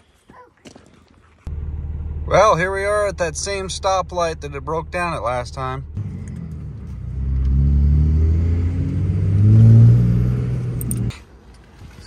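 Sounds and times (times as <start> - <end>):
diesel engine accelerating: 1.5 - 11.1.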